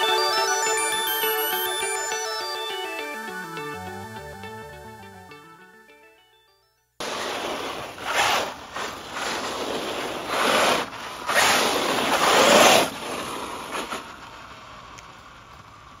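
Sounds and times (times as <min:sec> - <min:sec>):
rc truck tyres churning gravel: 0:07.0 - 0:16.0.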